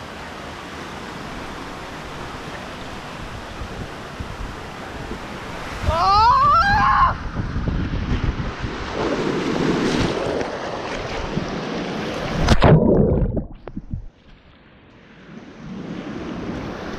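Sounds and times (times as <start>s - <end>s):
water rushing and splashing: 0.0s - 6.5s, 7.1s - 14.5s
wind noise on microphone: 3.2s - 11.6s, 12.2s - 14.3s
loud splash into pool: 12.2s - 13.7s.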